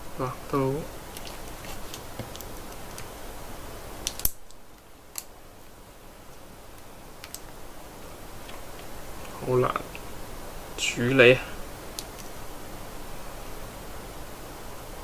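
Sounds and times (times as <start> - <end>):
plastic clicks and snaps: 4.0 - 5.3, 6.8 - 7.5.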